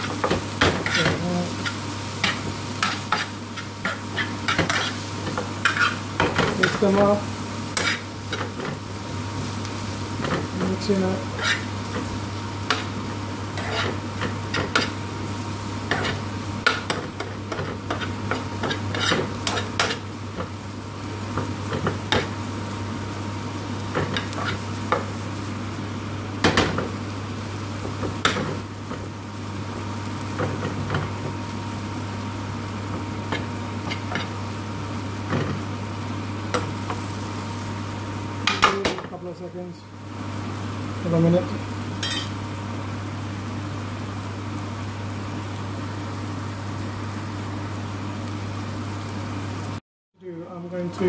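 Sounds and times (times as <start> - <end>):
light sizzle: 0.0 - 51.0
spoon scraping frying pan: 0.3 - 6.8, 7.7 - 8.7, 11.2 - 12.1, 13.5 - 15.0, 15.9 - 20.0.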